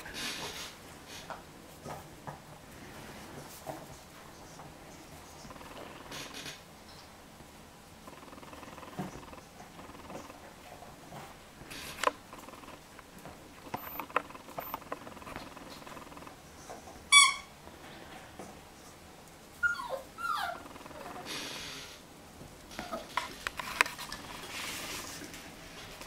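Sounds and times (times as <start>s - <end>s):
small clicks and knocks: 11.8s - 16.9s
puppy whining: 13.6s - 16.3s, 19.6s - 22.0s, 22.7s - 23.4s
squeaky toy squeak: 17.1s - 17.5s.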